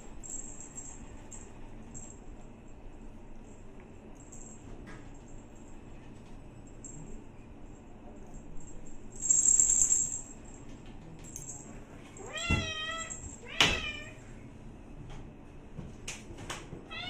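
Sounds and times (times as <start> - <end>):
cat meowing: 12.2 - 14.2.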